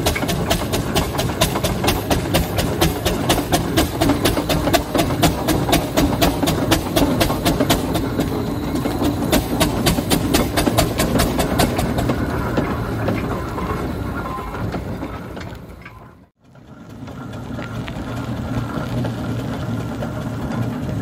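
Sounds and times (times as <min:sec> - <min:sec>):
rapid mechanical clicking: 0:00.0 - 0:15.7
steam roller rumbling: 0:00.0 - 0:21.0.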